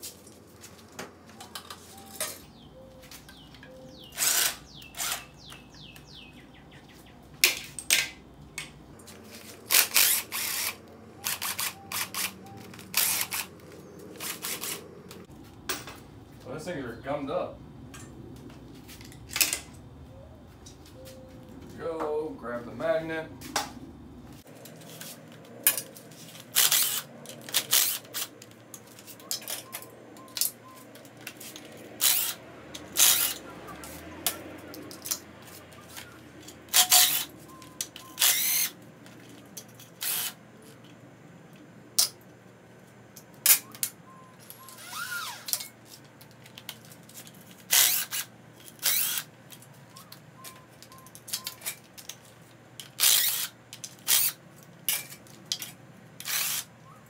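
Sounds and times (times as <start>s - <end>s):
sharp metallic clicks: 3.2s - 6.1s, 9.6s - 16.0s
cordless drill spinning nuts: 4.2s - 5.3s, 9.6s - 14.8s, 26.5s - 28.3s, 32.0s - 32.4s, 33.0s - 33.4s, 38.0s - 38.7s, 40.0s - 40.4s, 47.7s - 49.2s, 53.0s - 53.5s, 54.1s - 54.4s, 56.2s - 56.7s.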